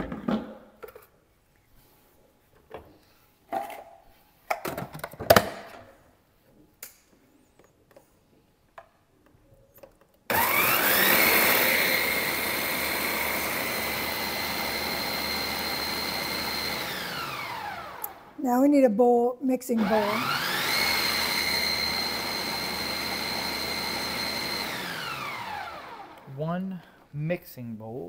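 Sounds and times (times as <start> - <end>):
blender grinding seeds: 10.3 - 18.4, 19.8 - 26.4.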